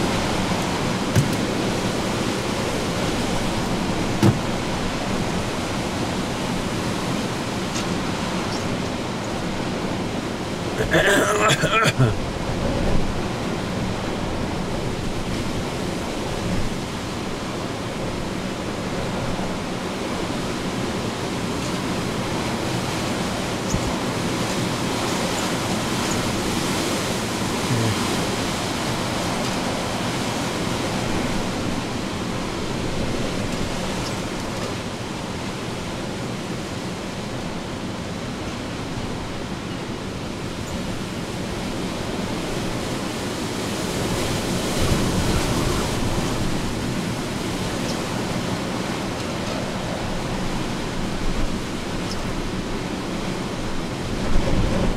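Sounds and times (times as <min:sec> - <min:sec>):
wind and rain rushing: 0:00.0 - 0:54.9.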